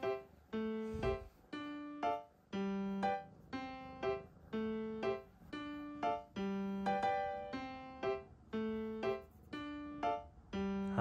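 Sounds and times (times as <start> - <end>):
light keyboard tune: 0.0 - 11.0.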